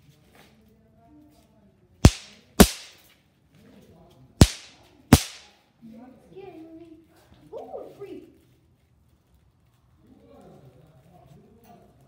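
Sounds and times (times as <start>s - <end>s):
firecracker cracks: 2.0s - 3.0s, 4.4s - 5.5s.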